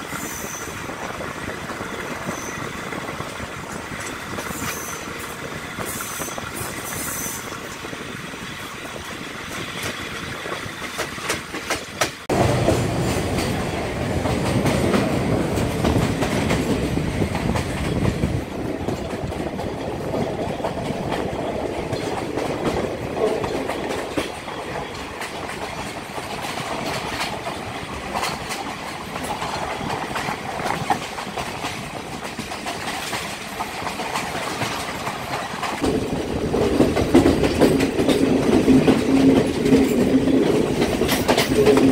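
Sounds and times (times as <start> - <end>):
train rumble: 0.0 - 41.9
wheels clacking over rail joints: 8.8 - 41.9.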